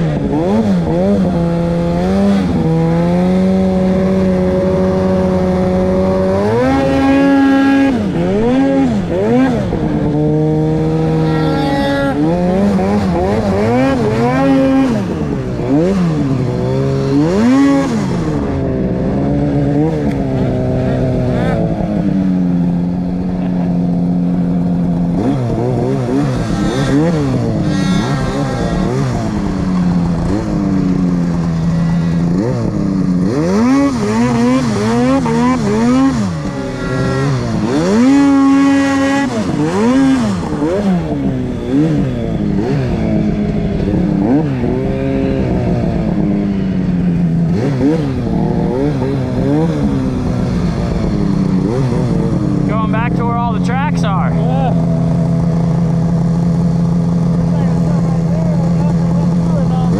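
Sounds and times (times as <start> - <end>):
snowmobile engine revving: 0.0 - 59.9.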